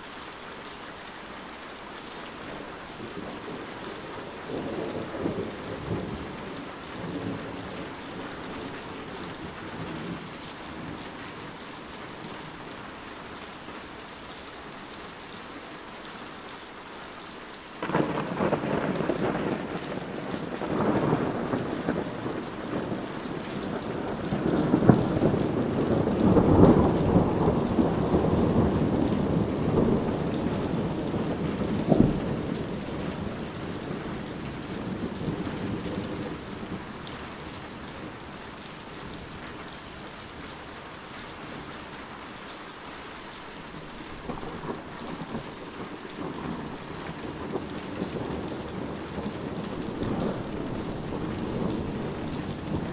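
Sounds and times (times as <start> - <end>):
heavy rain falling: 0.0 - 52.9
heavy rolling thunder: 3.0 - 11.2, 17.8 - 38.3, 44.2 - 52.9
loud thunder clap: 17.8 - 32.8
distant thunder rumbles: 17.8 - 38.3, 44.2 - 52.9.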